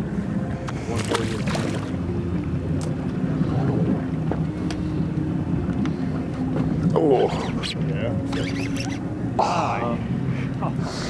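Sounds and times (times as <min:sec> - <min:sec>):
water noise: 0:00.0 - 0:10.9
boat engine hum: 0:00.0 - 0:11.0
wind: 0:00.0 - 0:11.0.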